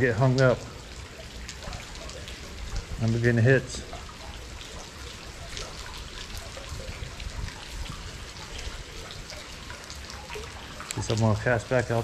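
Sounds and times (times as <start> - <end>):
drips ticking on water: 0.0 - 12.0
rain hissing on water: 0.0 - 12.0.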